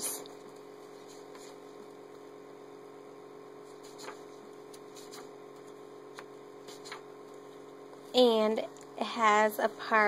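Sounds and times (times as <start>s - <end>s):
steady low hum: 0.0s - 10.0s
pages being turned: 3.7s - 7.1s.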